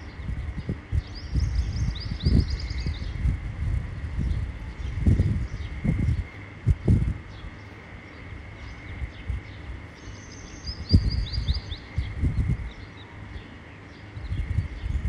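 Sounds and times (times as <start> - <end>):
bird chirping: 0.0 - 3.3, 7.2 - 15.0
faint high whine: 0.0 - 15.0.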